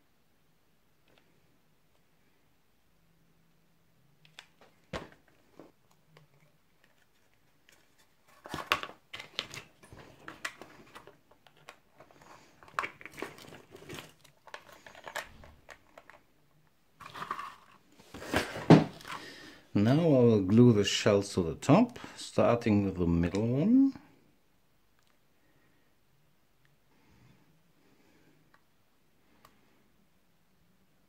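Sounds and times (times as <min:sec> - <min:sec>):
plastic crinkling and crackling: 0:04.3 - 0:16.2.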